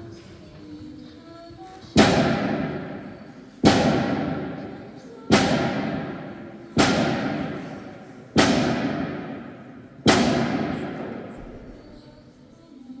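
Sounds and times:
heavy hammer blows ringing: 0:02.0 - 0:11.3.

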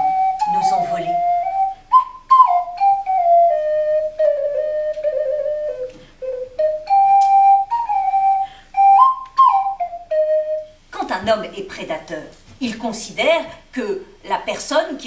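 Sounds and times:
flute playing slow melody: 0:00.0 - 0:10.8.

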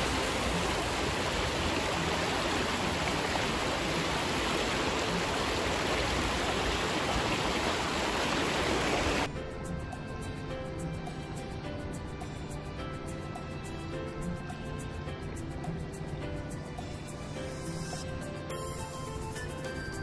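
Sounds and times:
creek water rushing over rock: 0:00.0 - 0:09.3
background music: 0:00.0 - 0:20.0.

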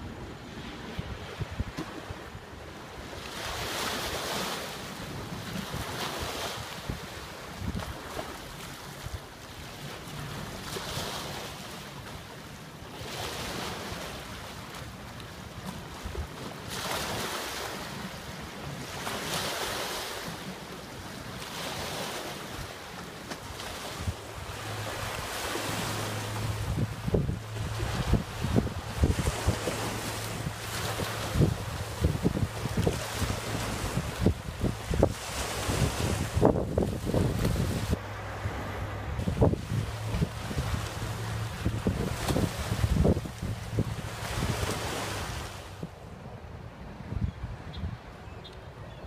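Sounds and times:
wind buffeting microphone: 0:00.0 - 0:02.6, 0:23.7 - 0:48.3
waves washing against rocks: 0:03.2 - 0:45.9.

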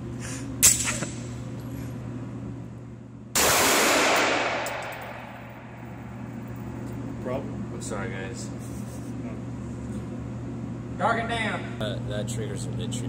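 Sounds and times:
pistol shot echoing indoors: 0:03.3 - 0:06.1.

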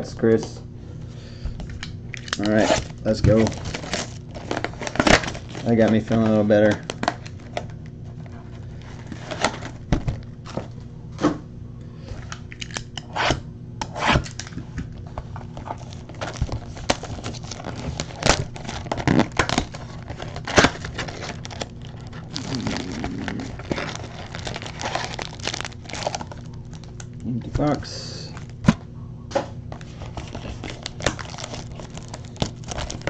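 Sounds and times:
wrapping tearing and crinkling: 0:02.1 - 0:10.7, 0:14.2 - 0:28.8, 0:29.7 - 0:33.0.

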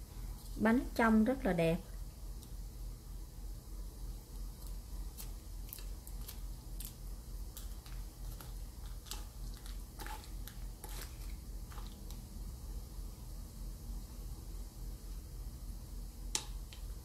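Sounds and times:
steady low hum: 0:00.0 - 0:17.0
spoon clicking and scraping tin: 0:07.8 - 0:12.0.

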